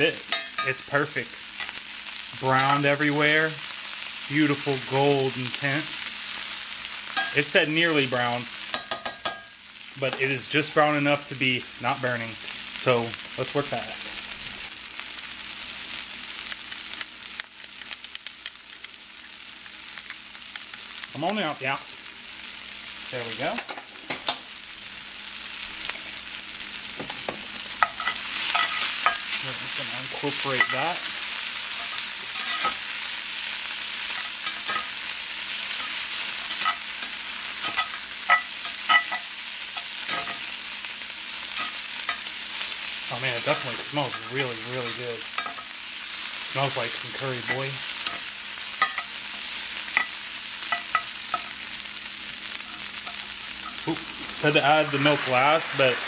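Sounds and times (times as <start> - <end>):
onions sizzling in oil: 0.0 - 56.0
spatula scraping a pan: 27.8 - 29.5, 30.4 - 33.0
oil popping and crackling: 52.4 - 56.0.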